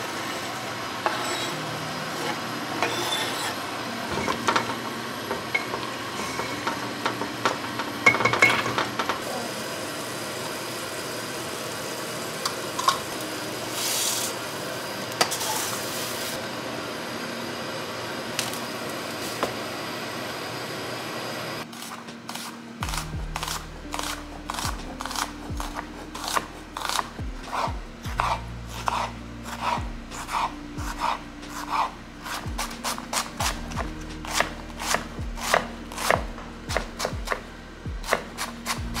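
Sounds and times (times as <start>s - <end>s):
knife slicing on cutting board: 21.8s - 36.2s.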